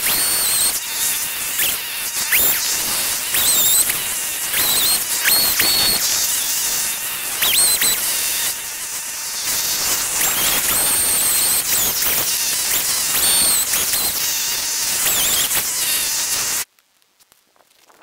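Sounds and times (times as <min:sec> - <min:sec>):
chainsaw cutting log: 0:00.0 - 0:16.7.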